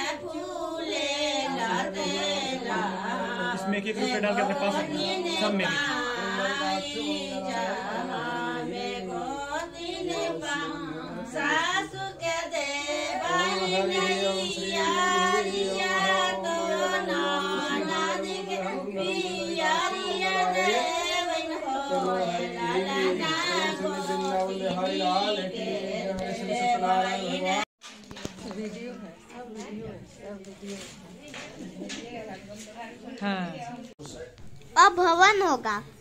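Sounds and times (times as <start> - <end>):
voices singing together: 0.0 - 27.7.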